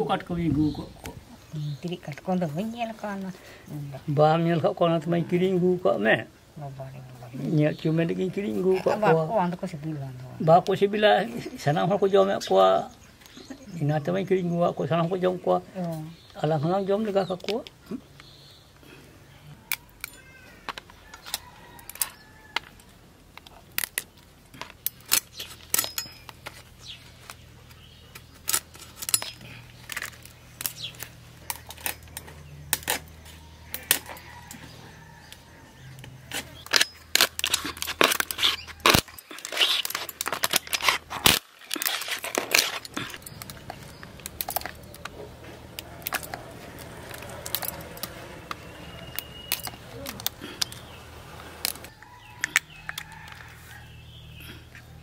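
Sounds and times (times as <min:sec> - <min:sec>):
crab shells cracking: 0:19.7 - 0:26.5, 0:28.2 - 0:33.1, 0:36.3 - 0:51.0.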